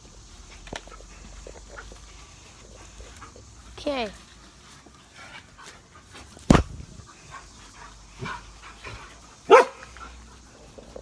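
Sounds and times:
dog barking: 0:09.5 - 0:09.8.

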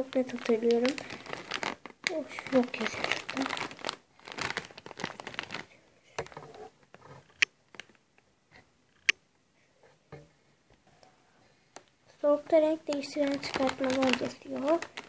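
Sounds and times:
crisp packet crinkling: 0:00.0 - 0:08.0, 0:12.2 - 0:15.0.

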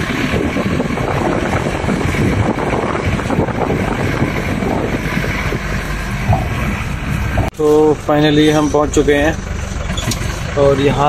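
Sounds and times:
wind noise on microphone: 0:00.0 - 0:07.6
vehicle engine running: 0:00.0 - 0:11.0
vehicle jolting and rattling: 0:00.0 - 0:11.0.

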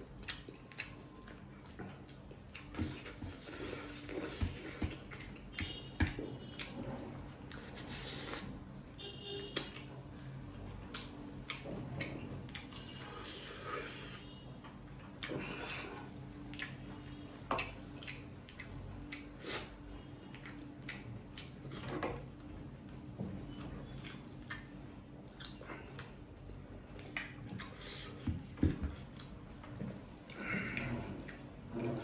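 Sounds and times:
faint low hum: 0:00.0 - 0:32.0
chewing noodles: 0:30.2 - 0:32.0.

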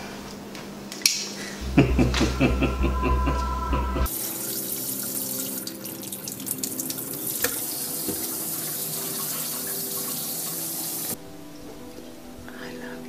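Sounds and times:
faucet running into sink: 0:04.1 - 0:11.2.

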